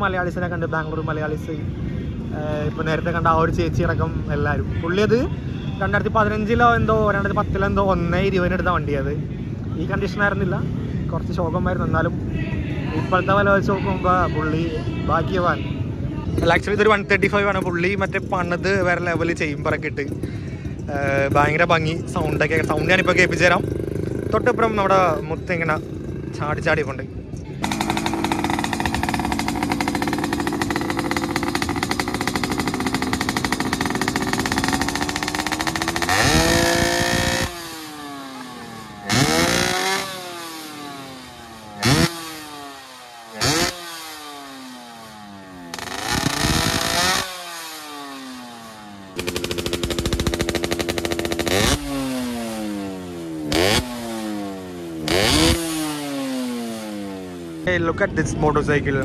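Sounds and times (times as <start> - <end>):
motorcycle engine revving: 16.4 - 57.8.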